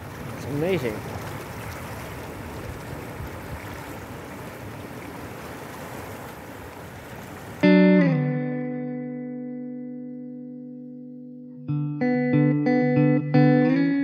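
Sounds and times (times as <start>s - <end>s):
surf washing around rocks: 0.0s - 7.7s.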